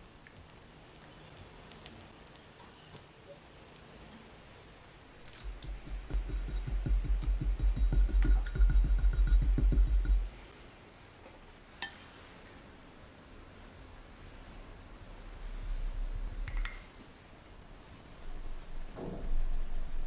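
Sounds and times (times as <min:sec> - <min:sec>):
spatula scraping cream: 0:05.2 - 0:10.3.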